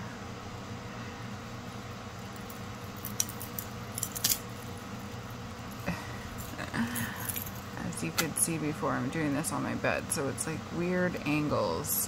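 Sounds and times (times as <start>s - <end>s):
steady low hum: 0.0s - 12.0s
metal jewelry chains clinking: 6.3s - 7.7s.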